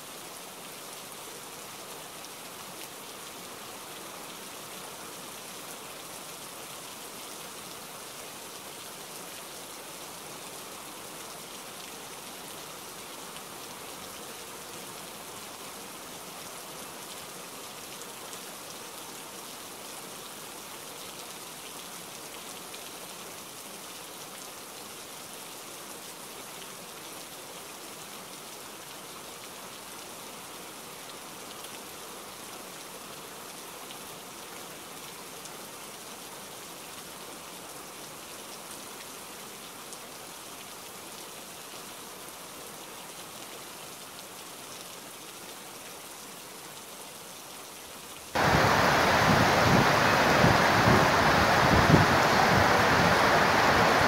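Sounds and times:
rain falling steadily: 0.0 - 54.0.

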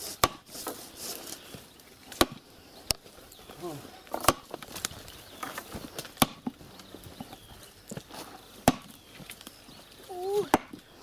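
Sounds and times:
sledgehammer knocking wooden stake: 0.2 - 0.5, 2.2 - 2.4, 4.2 - 4.6, 6.2 - 6.6, 8.6 - 9.0, 10.5 - 10.8.

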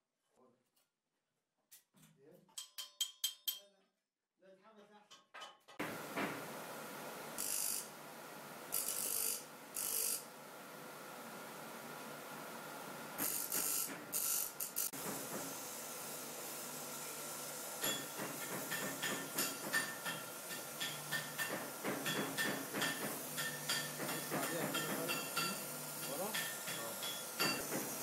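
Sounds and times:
bench grinder grinding brass: 7.2 - 10.4, 13.1 - 28.0
gas torch flame hissing: 13.2 - 28.0.

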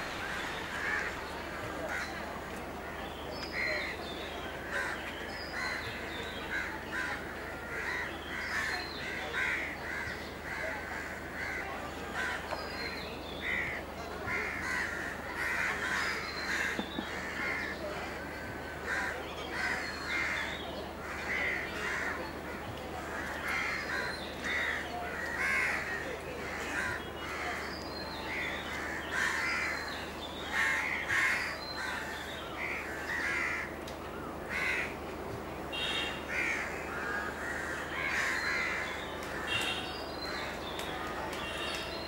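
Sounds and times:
flock of birds calling: 0.0 - 35.0, 35.7 - 42.0.

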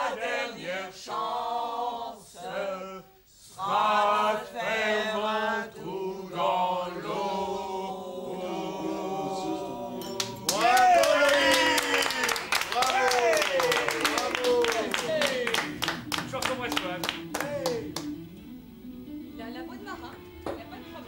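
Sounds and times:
hand claps: 10.0 - 18.2.

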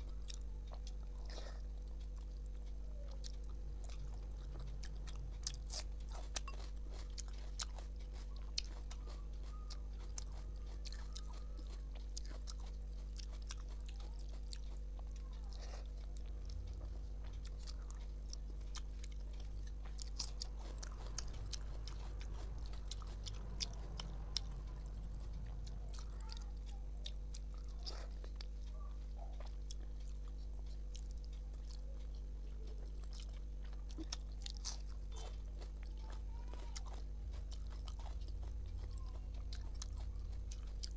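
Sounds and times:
chewing and biting: 0.0 - 40.9
steady low hum: 0.0 - 40.9.

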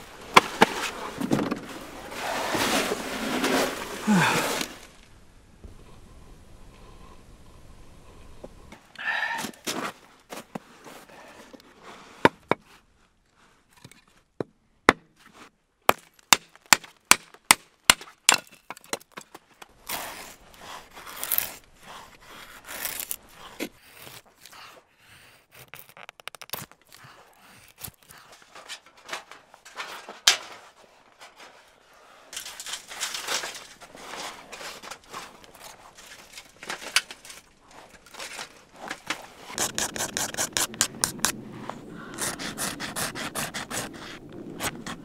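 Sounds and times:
twigs rasping: 15.9 - 45.0
knife scraping wood: 19.8 - 30.3, 31.3 - 45.0
hatchet splitting kindling: 32.3 - 41.4.

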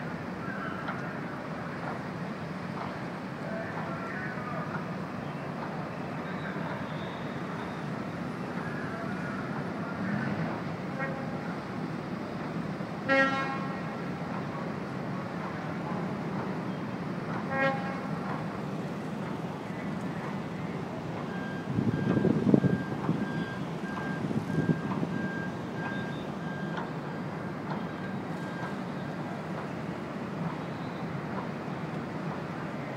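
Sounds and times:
harbour rumble: 0.2 - 32.9
vehicle reversing beeper: 6.1 - 10.4, 20.4 - 29.4
ferry horn blast: 13.1 - 13.8.

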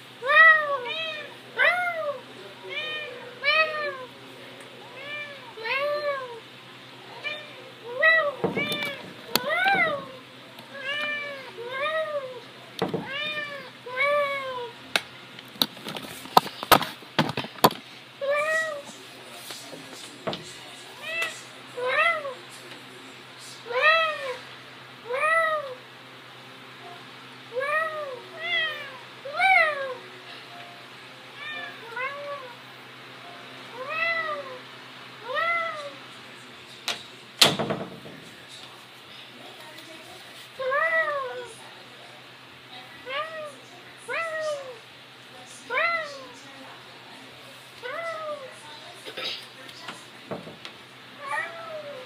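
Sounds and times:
cat meowing: 4.9 - 6.4, 7.1 - 14.7, 31.4 - 32.5, 51.2 - 52.0
sharp knocks on door: 37.4 - 38.3.

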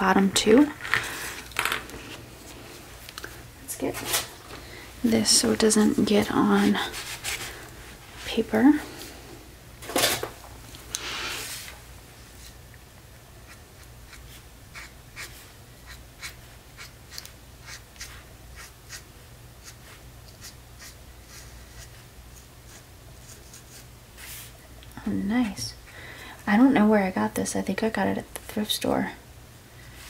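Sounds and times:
marker scratching on paper: 13.5 - 19.0, 19.6 - 23.8.

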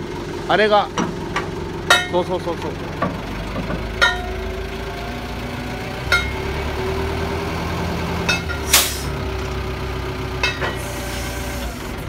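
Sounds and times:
diesel engine idling: 0.0 - 12.0
hydraulic steady tone: 4.0 - 4.5, 6.1 - 6.6, 10.4 - 12.0.

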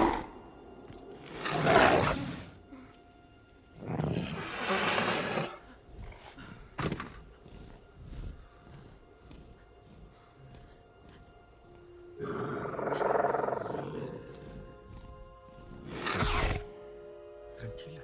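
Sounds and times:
rough growling calls: 0.0 - 2.6, 12.2 - 16.7.

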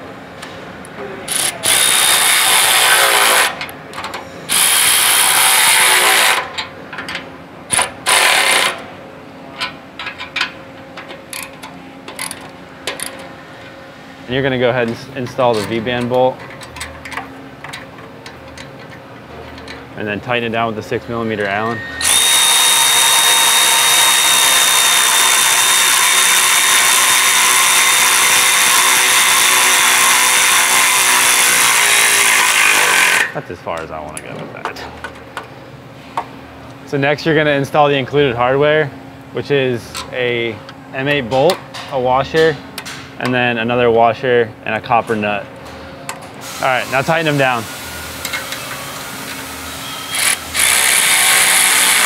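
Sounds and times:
electric ratchet whining: 1.3 - 3.6, 4.5 - 6.5, 7.7 - 8.8, 21.7 - 33.3, 48.2 - 52.0.

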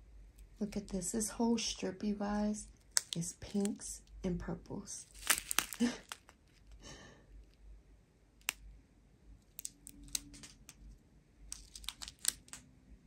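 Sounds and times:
plastic bags crinkling: 5.0 - 6.7, 11.5 - 12.6.

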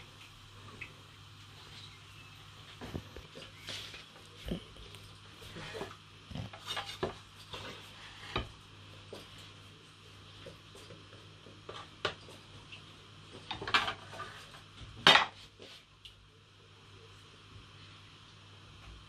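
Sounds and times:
spatula scraping a frying pan: 5.5 - 8.6.

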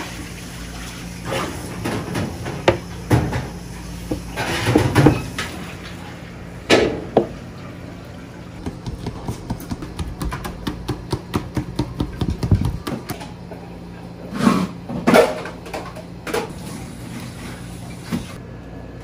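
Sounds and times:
kitchen hum: 0.0 - 19.0
hand fan flapping: 12.2 - 13.3.

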